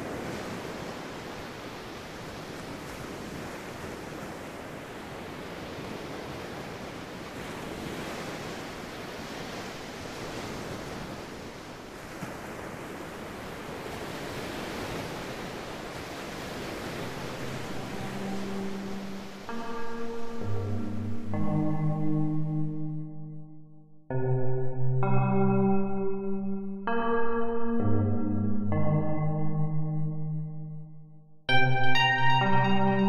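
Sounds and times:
ocean waves washing: 0.0s - 23.4s, 31.5s - 33.0s.

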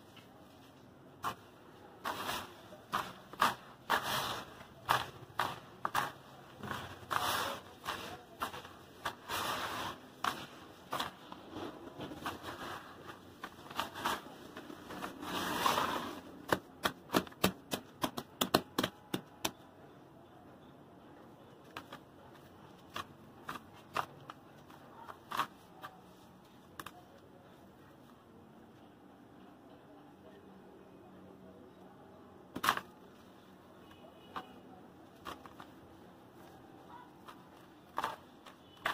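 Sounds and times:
hands raking dry gravel: 1.2s - 17.0s.

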